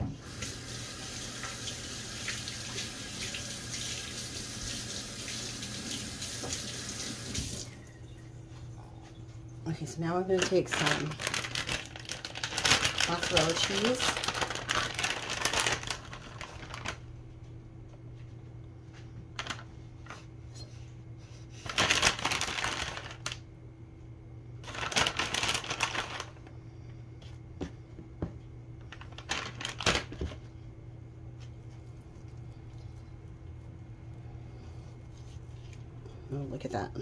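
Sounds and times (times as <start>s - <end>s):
faint steady hum: 0.0s - 37.0s
plastic bag crinkling: 10.2s - 17.1s, 19.4s - 20.1s, 21.6s - 23.5s, 24.6s - 26.5s, 28.8s - 30.4s.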